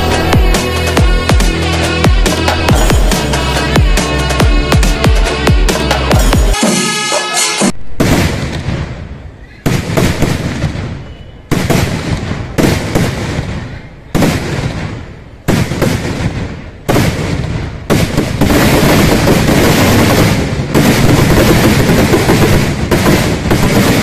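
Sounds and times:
firecrackers exploding: 0:07.9 - 0:24.0.

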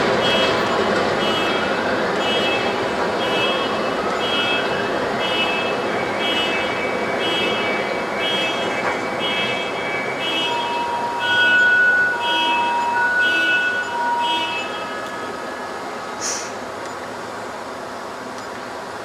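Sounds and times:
city traffic rumble: 0:00.0 - 0:19.0
reversing alarm beeping: 0:00.2 - 0:16.2
high whine: 0:07.8 - 0:16.6.

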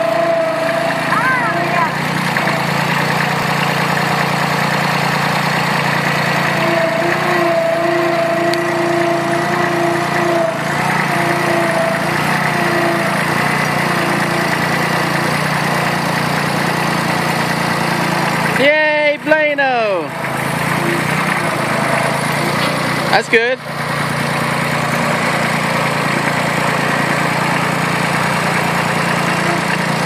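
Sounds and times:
tractor diesel engine running: 0:00.0 - 0:30.0
blade dragging over dirt: 0:20.2 - 0:30.0.

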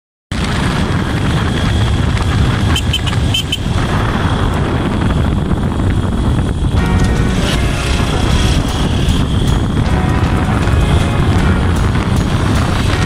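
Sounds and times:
vehicle engine and road rumble: 0:00.3 - 0:13.0.

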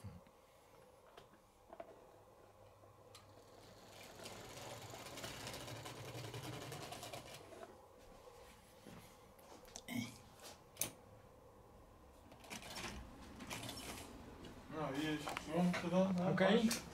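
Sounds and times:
model train motor whirring: 0:03.1 - 0:07.5.

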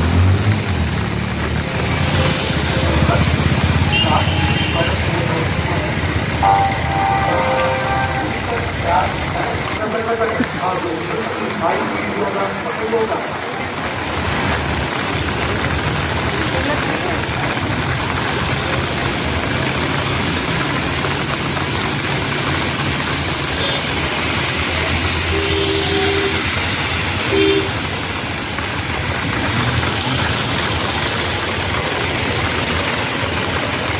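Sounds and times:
rain hissing on wet street: 0:00.0 - 0:33.9
vehicle engines running: 0:00.0 - 0:33.9
vehicle horn honking: 0:03.8 - 0:05.1, 0:06.4 - 0:08.6, 0:25.2 - 0:26.6, 0:27.3 - 0:27.8.

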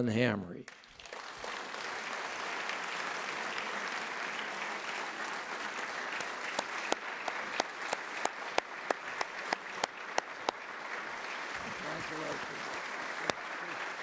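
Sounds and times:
audience applauding: 0:00.7 - 0:14.0
sharp claps close by: 0:00.7 - 0:14.0.

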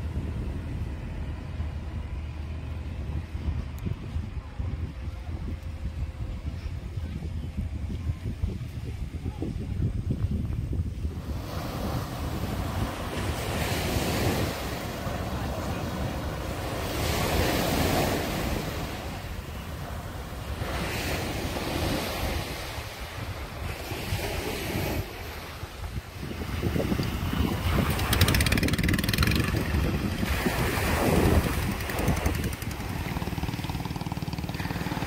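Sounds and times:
wind rumble on microphone: 0:00.0 - 0:35.0
waves washing on sand: 0:10.9 - 0:35.0.

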